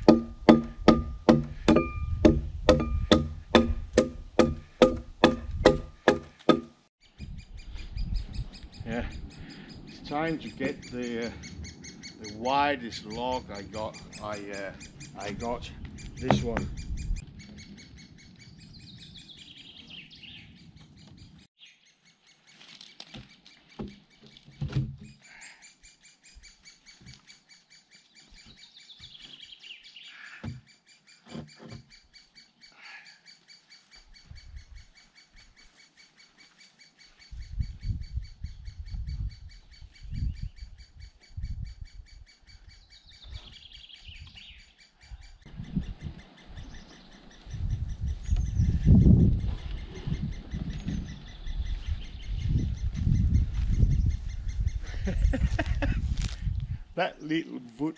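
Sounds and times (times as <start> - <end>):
low thumps: 0.0 - 6.7, 15.2 - 17.2
sharp knock: 0.0 - 6.7
birds singing: 7.0 - 57.9.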